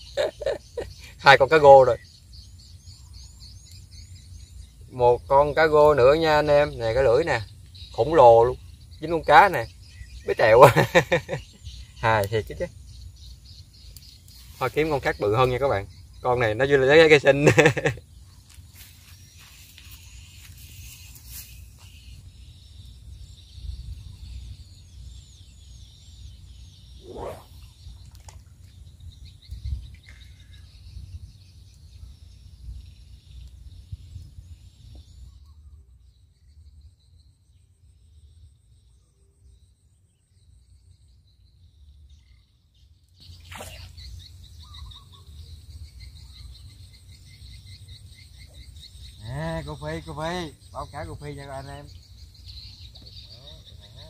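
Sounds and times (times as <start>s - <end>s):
birds chirping: 0.0s - 54.0s
wind rumbling on microphone: 20.1s - 35.8s
fishing pole swishing: 27.0s - 28.4s, 43.4s - 44.0s.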